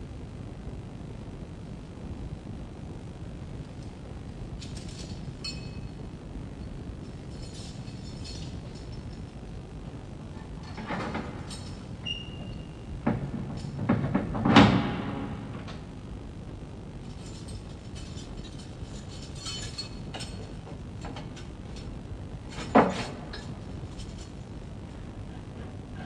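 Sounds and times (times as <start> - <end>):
metal cell door clanking: 10.7 - 15.6.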